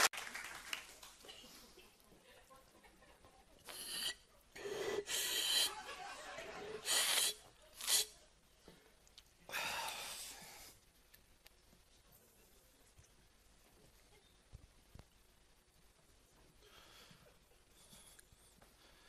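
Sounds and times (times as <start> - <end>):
man making breathy mouth sounds: 3.6 - 5.7.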